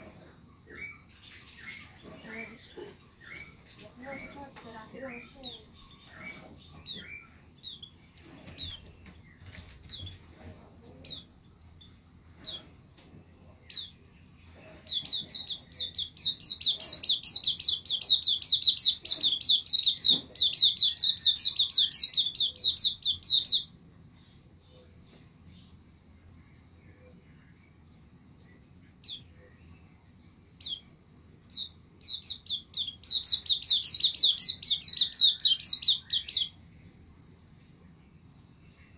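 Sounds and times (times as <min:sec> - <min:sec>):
bird singing high chirps: 0:14.9 - 0:23.7, 0:30.6 - 0:30.9, 0:31.5 - 0:36.6.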